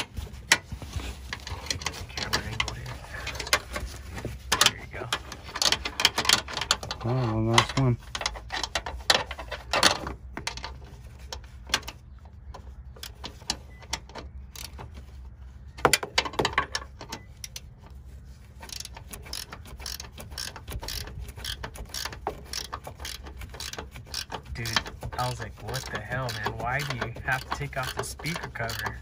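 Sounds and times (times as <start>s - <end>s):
tools and parts knocking: 1.3s - 15.0s, 15.8s - 17.6s, 18.6s - 29.0s
ratchet wrench clicking: 18.6s - 24.9s, 25.8s - 29.0s.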